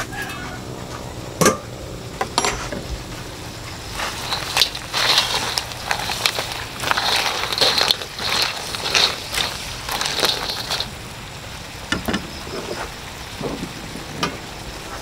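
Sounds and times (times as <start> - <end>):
shells scraping in a wok: 3.7 - 11.1.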